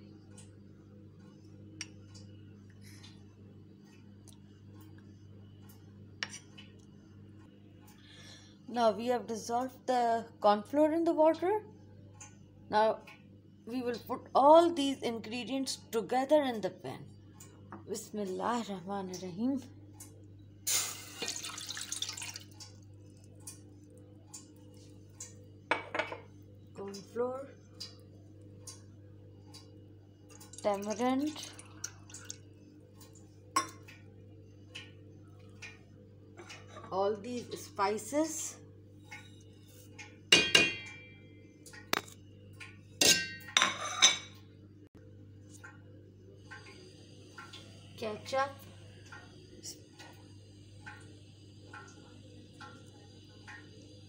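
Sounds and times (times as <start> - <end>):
faint drips: 1.2 - 8.7, 17.0 - 25.7, 26.3 - 40.3, 45.4 - 54.0
liquid pouring into steel pan: 21.2 - 22.6
utensils clinking against steel pan: 43.0 - 44.3.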